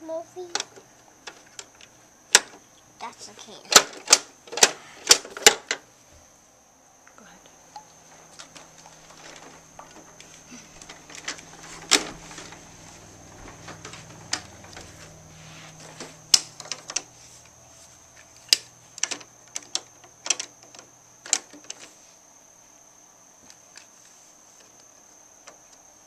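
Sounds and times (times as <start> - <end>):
plastic toy clicks and knocks: 0.5 - 2.6, 3.7 - 5.8, 18.5 - 21.9.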